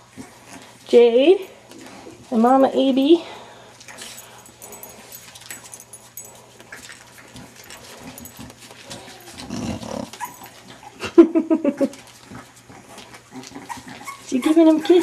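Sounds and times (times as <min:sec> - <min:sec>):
dogs rustling and clicking: 0:00.0 - 0:11.0, 0:11.6 - 0:15.0
rapid throaty dog grunts: 0:09.0 - 0:11.0
dog grunting: 0:09.0 - 0:11.1.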